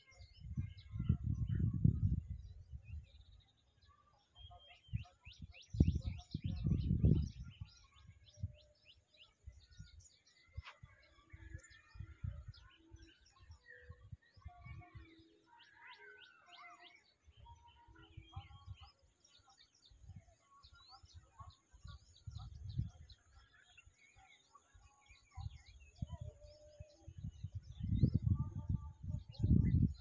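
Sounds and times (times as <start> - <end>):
small birds chirping: 0.0 - 30.0
low rumbling on microphone: 0.4 - 3.0, 5.7 - 7.7, 27.1 - 30.0.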